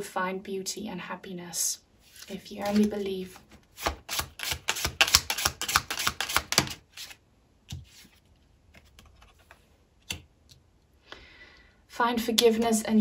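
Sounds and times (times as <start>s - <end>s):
cards being shuffled by hand: 2.0s - 10.2s.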